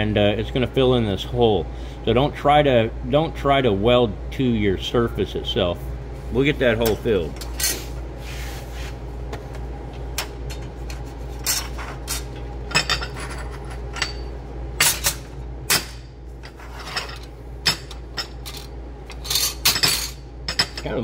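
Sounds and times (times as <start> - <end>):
steady low hum: 0.0 - 21.0
metal plates clinking on steel table: 16.5 - 21.0.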